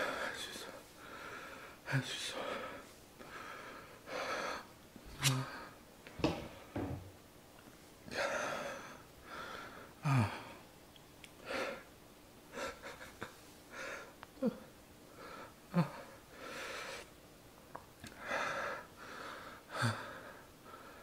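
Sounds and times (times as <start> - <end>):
man groaning: 10.0 - 10.6
man gasping and breathing hard: 18.1 - 21.0.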